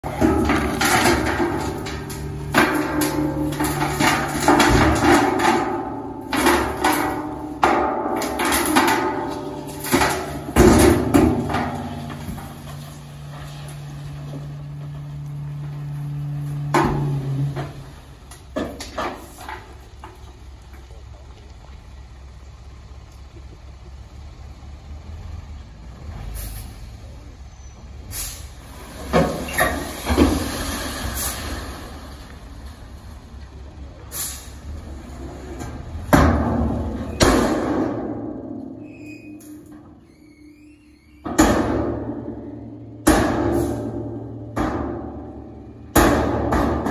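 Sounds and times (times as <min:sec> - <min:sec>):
load tipping out of truck box: 0:00.0 - 0:20.3
dirt load knocking and clanking: 0:00.0 - 0:27.0, 0:28.0 - 0:46.9
truck engine humming: 0:00.0 - 0:46.9
loud air release bursts: 0:28.1 - 0:28.6, 0:34.1 - 0:34.6.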